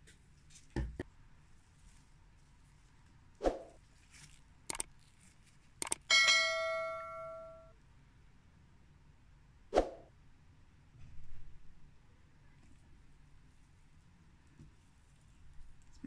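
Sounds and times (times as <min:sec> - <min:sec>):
quick clicks: 0:04.7 - 0:04.9, 0:05.8 - 0:06.1
bell chime: 0:06.1 - 0:07.7.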